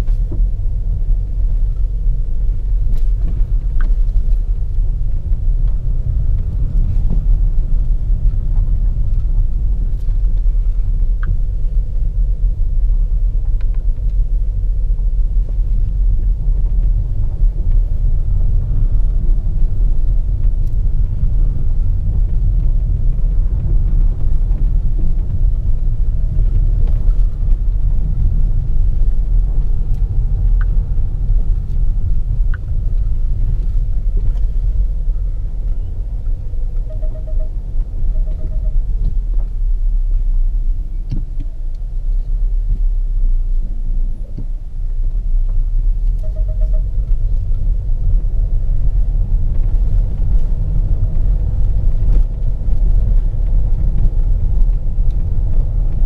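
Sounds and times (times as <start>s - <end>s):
car engine rumble in motion: 0.0s - 56.0s
short pulsed beeps: 36.8s - 38.9s, 46.2s - 46.9s.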